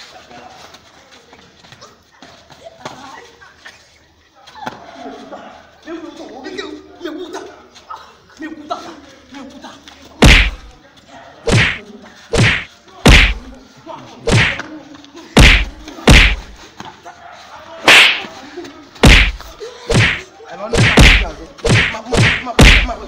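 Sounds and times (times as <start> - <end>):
punch impacts: 10.2 - 10.7, 11.5 - 13.5, 14.3 - 14.6, 15.4 - 16.6, 17.9 - 18.3, 19.0 - 23.0.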